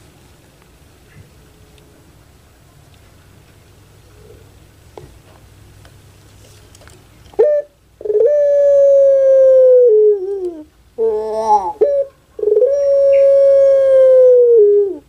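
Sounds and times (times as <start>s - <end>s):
dove cooing: 3.9s - 4.7s, 7.4s - 15.0s.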